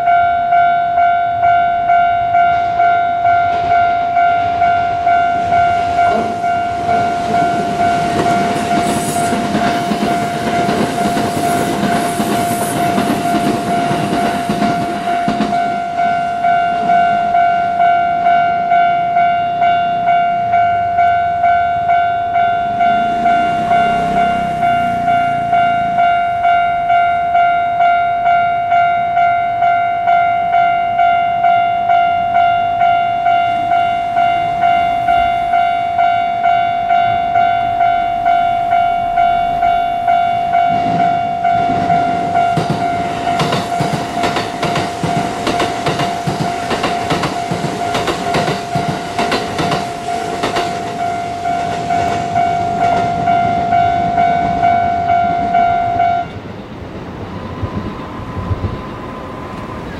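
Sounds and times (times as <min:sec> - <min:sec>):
train wheels clattering over rail joints: 0:07.2 - 0:15.6, 0:40.7 - 0:53.6.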